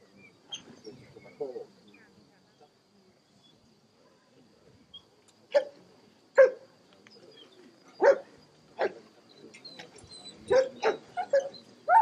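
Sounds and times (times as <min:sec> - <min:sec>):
dog barking: 0:05.5 - 0:05.8, 0:06.4 - 0:06.6, 0:08.0 - 0:09.0, 0:10.5 - 0:12.0.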